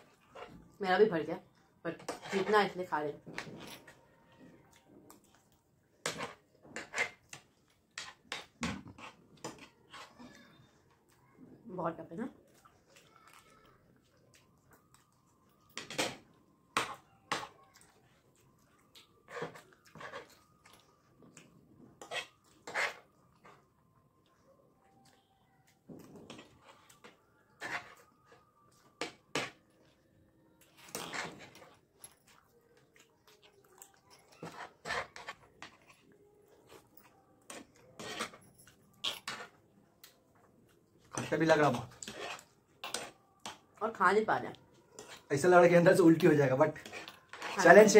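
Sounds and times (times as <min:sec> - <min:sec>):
people chewing: 0:03.4 - 0:11.5, 0:12.4 - 0:43.8, 0:44.5 - 0:47.9
spoons scraping on plates: 0:06.0 - 0:10.2, 0:22.0 - 0:23.6, 0:26.3 - 0:28.1, 0:30.8 - 0:32.0, 0:34.2 - 0:39.6, 0:41.0 - 0:43.6, 0:44.9 - 0:45.8, 0:46.5 - 0:47.9.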